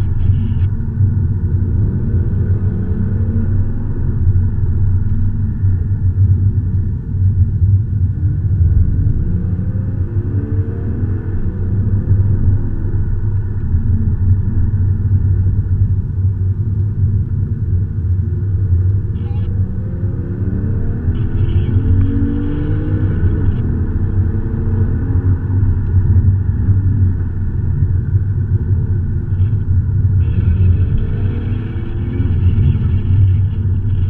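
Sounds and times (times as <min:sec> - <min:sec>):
road rumble: 0:00.0 - 0:34.0
car engine accelerating: 0:16.8 - 0:34.0.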